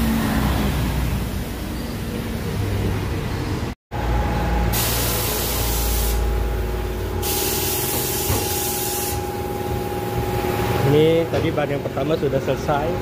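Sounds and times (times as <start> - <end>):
compressed air hissing: 4.7 - 6.3, 7.0 - 9.3
low machine hum: 6.2 - 13.0.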